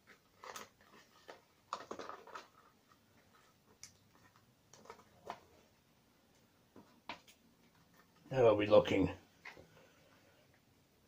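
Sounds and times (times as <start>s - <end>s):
tape taps and crinkles: 0.0s - 5.5s, 6.3s - 8.3s.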